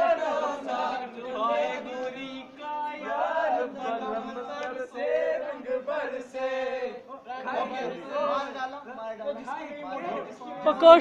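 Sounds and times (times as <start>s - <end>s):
men singing and chanting: 0.0s - 11.0s.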